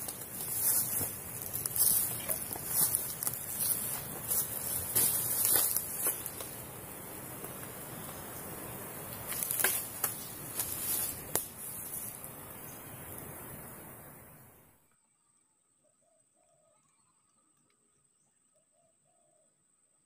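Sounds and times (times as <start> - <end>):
footsteps crunching through dry leaves: 0.0 - 12.3
faint steady hiss: 0.0 - 20.0.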